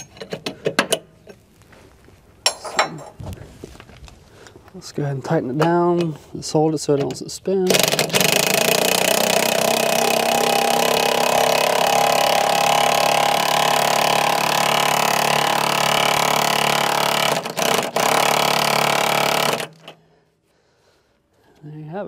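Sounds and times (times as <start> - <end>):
power impact wrench running: 7.7 - 20.0.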